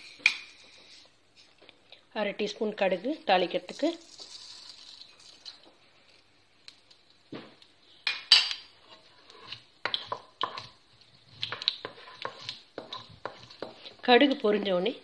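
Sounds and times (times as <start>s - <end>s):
wooden spoon scraping pan: 8.8s - 14.8s.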